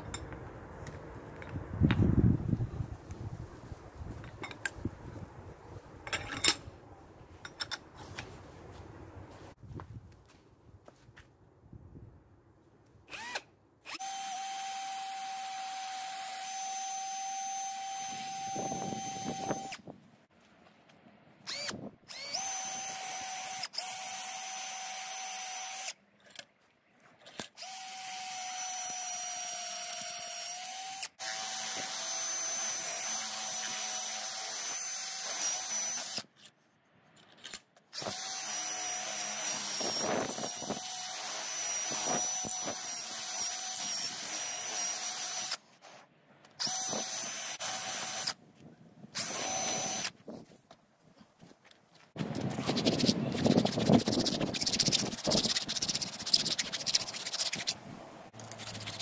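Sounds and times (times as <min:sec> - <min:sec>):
cordless drill whining: 0:13.1 - 0:19.8, 0:21.5 - 0:26.0, 0:27.6 - 0:36.2, 0:38.0 - 0:45.6, 0:46.6 - 0:48.4, 0:49.2 - 0:50.1.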